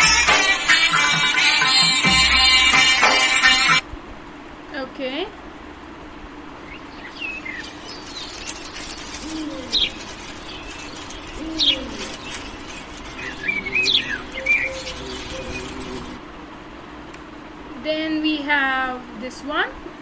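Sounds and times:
sparrow chirping: 6.6 - 16.2.

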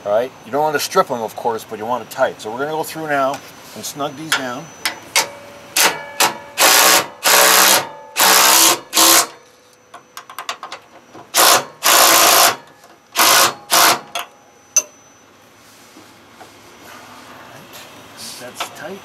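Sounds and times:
impact wrench bursts: 4.8 - 9.4, 11.3 - 15.0.

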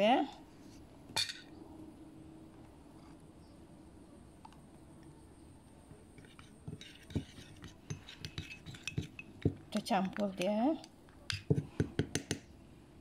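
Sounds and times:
metal spoon clinking in ceramic bowl: 1.2 - 1.5, 6.7 - 10.5.

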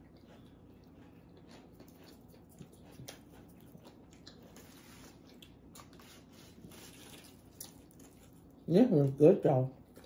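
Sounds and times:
chewing and wet mouth sounds: 0.0 - 10.0.

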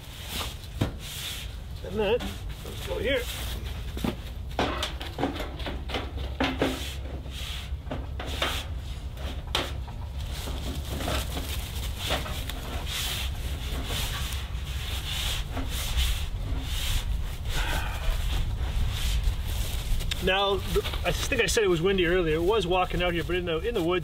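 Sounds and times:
sheet metal pipes scraping: 4.6 - 23.1.

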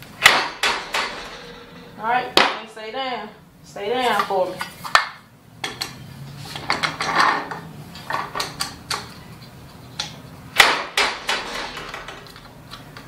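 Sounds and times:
metal clanks of printing press: 0.2 - 2.0, 10.6 - 12.4.

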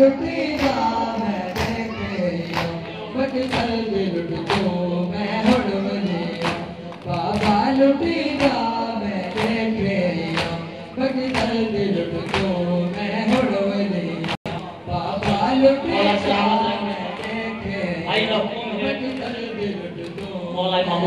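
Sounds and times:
men chanting in chorus: 0.0 - 21.0
rhythmic chest-beating: 0.0 - 21.0.

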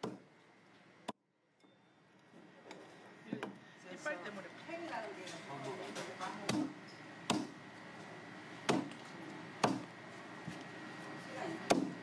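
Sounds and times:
knife chopping on wooden block: 7.3 - 7.6, 8.7 - 8.9, 9.6 - 9.8, 11.7 - 12.0.

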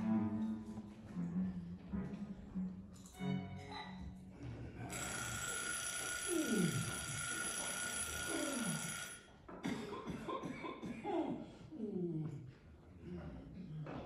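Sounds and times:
low bowed-string music: 0.0 - 4.9
electric bell ringing: 4.9 - 9.3.

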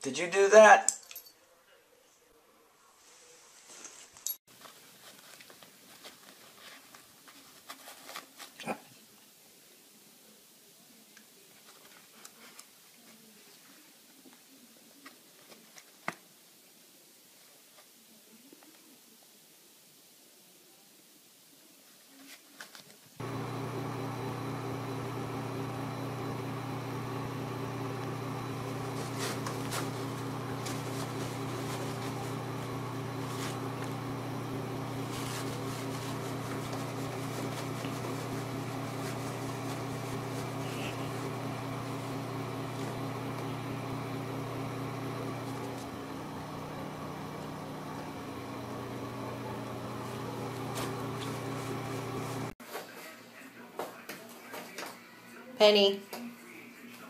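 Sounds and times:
low machine hum: 23.2 - 52.5.

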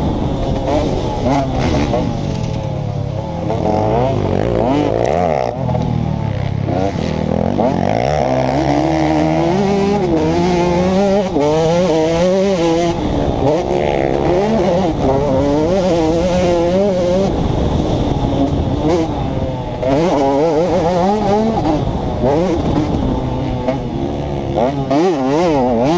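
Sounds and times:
motorcycle engine revving: 0.0 - 25.9.

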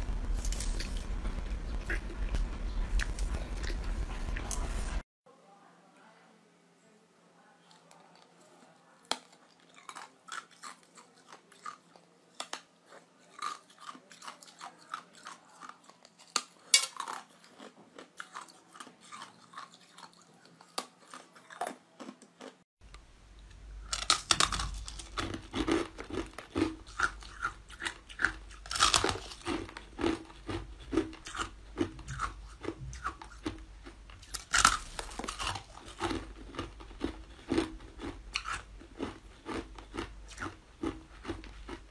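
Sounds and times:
low steady hum: 0.0 - 7.7, 22.8 - 41.9
ice being chewed: 1.8 - 5.0, 7.9 - 22.6, 23.9 - 41.9.

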